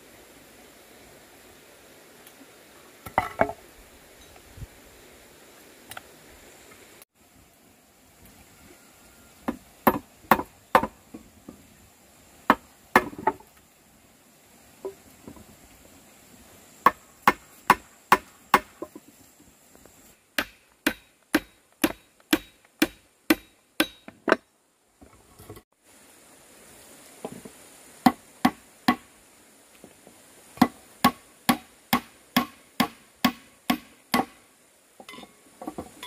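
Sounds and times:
hand tool striking wood: 0:09.5 - 0:11.2, 0:12.5 - 0:13.4, 0:16.8 - 0:19.1, 0:20.3 - 0:24.5, 0:28.0 - 0:29.1, 0:30.6 - 0:34.4.

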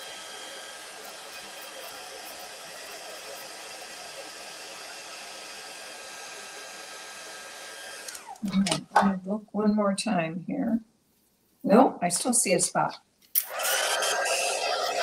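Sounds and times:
heat tool fan blowing: 0:00.0 - 0:09.1, 0:13.4 - 0:15.0.

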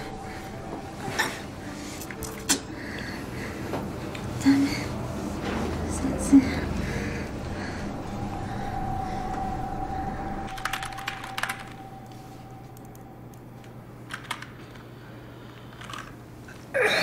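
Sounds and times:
low hum: 0:00.0 - 0:16.4
keyboard keys tapping: 0:10.5 - 0:14.9.

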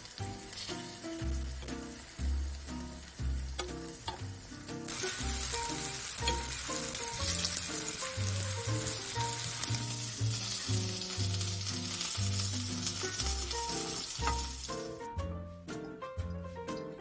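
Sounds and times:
chicken sizzling in frying pan: 0:00.0 - 0:15.2
background music: 0:00.0 - 0:17.0.

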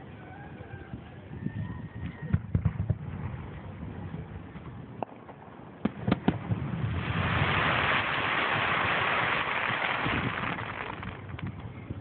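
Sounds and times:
firework bang: 0:05.0 - 0:11.5
firework crackling hiss: 0:06.1 - 0:11.5.

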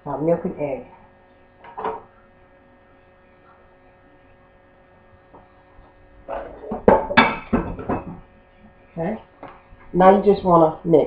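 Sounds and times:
low electrical hum: 0:00.0 - 0:11.0
kitchenware knocking and clattering: 0:06.3 - 0:08.2.

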